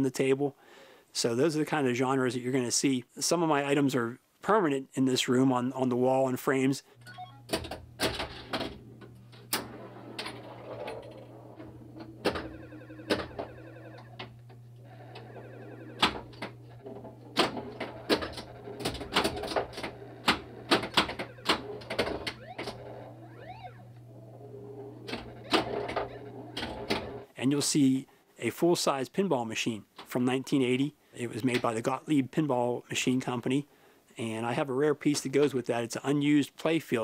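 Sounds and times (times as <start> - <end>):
pinball flippers and solenoids clacking: 7.5 - 14.4, 15.1 - 23.9, 24.7 - 27.3
short electronic tones and sweeps: 21.2 - 24.0.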